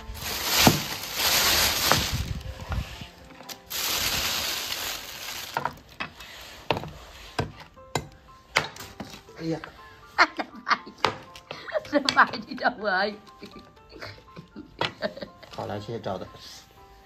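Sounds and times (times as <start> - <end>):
rustling and scraping: 0.0 - 7.8.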